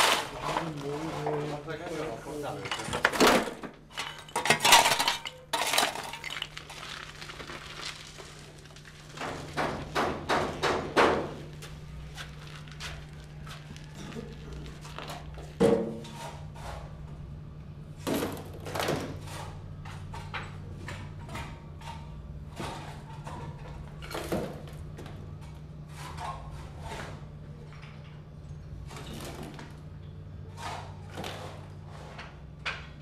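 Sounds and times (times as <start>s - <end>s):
rubble clattering and thudding: 2.6s - 16.1s.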